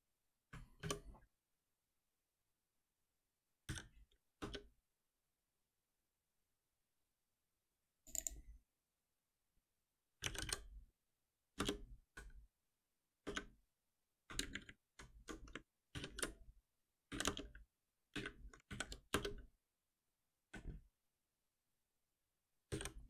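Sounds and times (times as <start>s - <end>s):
computer keyboard typing: 10.2s - 10.7s, 11.6s - 11.9s, 14.3s - 16.4s, 17.1s - 17.6s, 18.2s - 19.5s.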